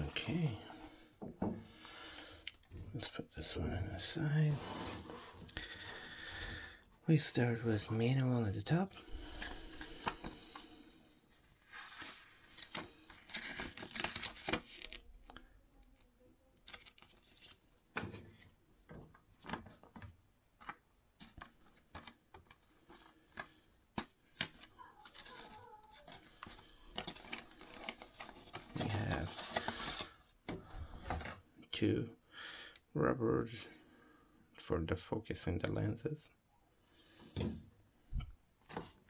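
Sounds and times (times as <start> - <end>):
paper rustling: 11.6 - 15.1, 16.6 - 31.4.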